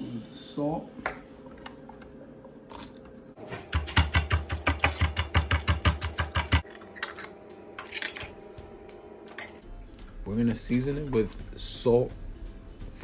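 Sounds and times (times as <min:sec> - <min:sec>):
pestle pounding in stone mortar: 0:03.6 - 0:06.6.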